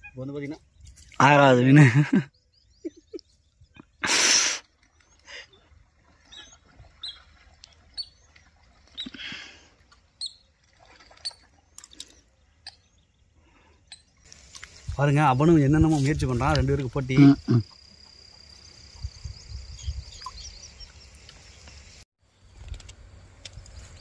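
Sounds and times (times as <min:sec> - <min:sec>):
high bird chirps: 0:17.3 - 0:21.4.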